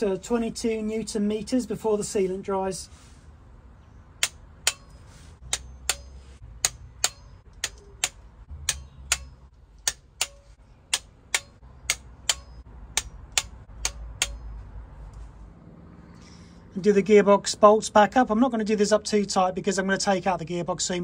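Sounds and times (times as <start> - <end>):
torque wrench clicking: 4.2 - 14.5.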